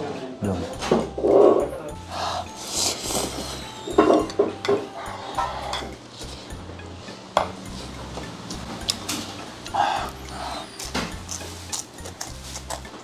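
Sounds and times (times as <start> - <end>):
chewing noodles: 8.5 - 13.0.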